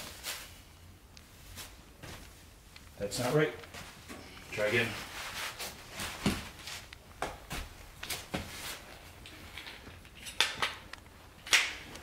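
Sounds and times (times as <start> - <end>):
fabric rustling: 0.0 - 2.7, 3.7 - 9.1.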